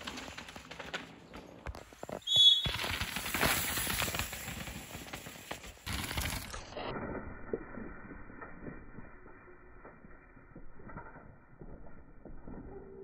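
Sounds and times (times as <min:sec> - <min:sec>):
bike rattling: 0:00.0 - 0:06.9
bike tyres on dirt trail: 0:00.0 - 0:13.0.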